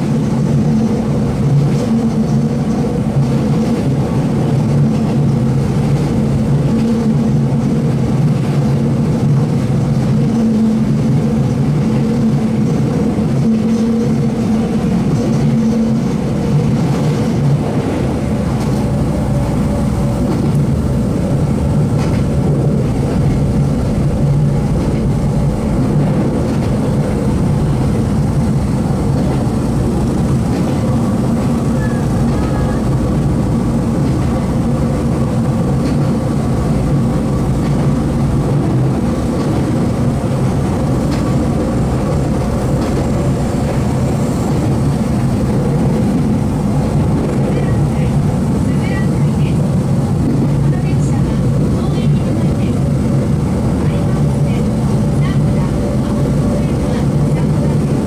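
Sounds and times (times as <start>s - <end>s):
electric train running: 0.0s - 58.0s.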